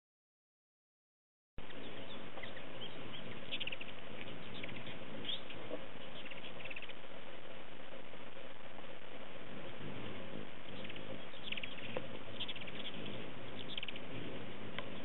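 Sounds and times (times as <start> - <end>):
hummingbirds chattering: 1.6 - 15.0
steady hiss: 1.6 - 15.0.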